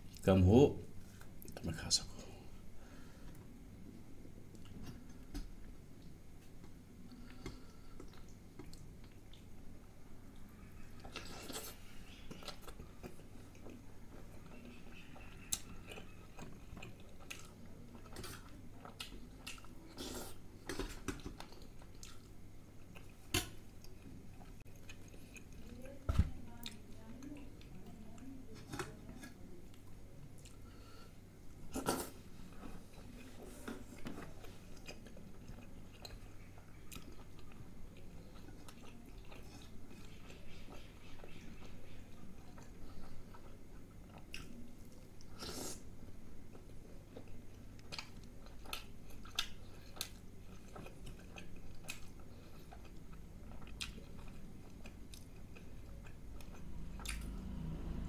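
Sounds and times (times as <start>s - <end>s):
person chewing food: 4.4s - 25.9s, 29.2s - 57.6s.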